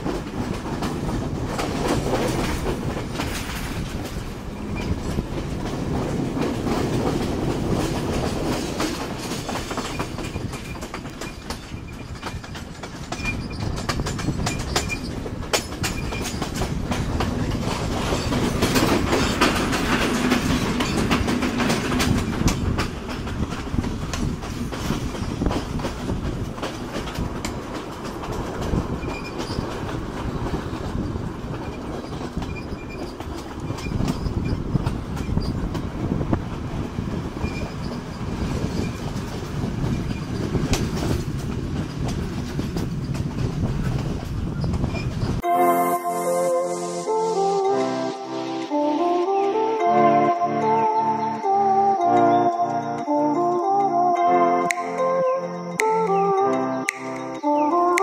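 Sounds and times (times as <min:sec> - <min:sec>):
clickety-clack over rail joints: 0:00.0 - 0:45.4
train wheels rumbling on rail: 0:00.0 - 0:45.4.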